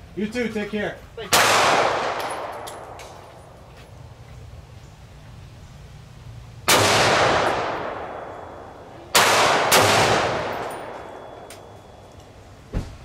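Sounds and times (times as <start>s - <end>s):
gunshots: 1.3s - 3.1s, 6.7s - 8.4s, 9.1s - 11.2s.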